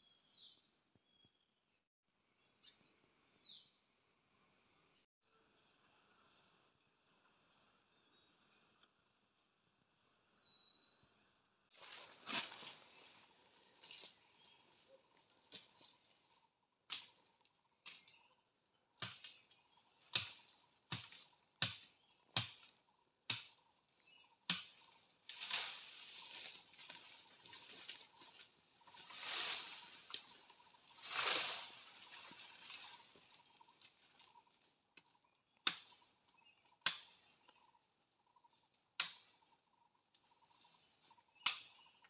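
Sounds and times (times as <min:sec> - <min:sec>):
rustle of branches and dry leaves: 0:11.7 - 0:42.0
axe chopping wood: 0:19.0 - 0:19.4, 0:20.0 - 0:23.7, 0:24.4 - 0:24.8, 0:35.6 - 0:36.1, 0:36.8 - 0:37.2, 0:39.0 - 0:39.3.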